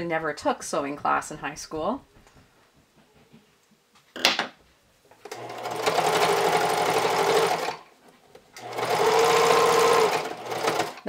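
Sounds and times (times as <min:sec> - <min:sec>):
sewing machine stitching: 0:05.2 - 0:07.9, 0:08.5 - 0:11.0.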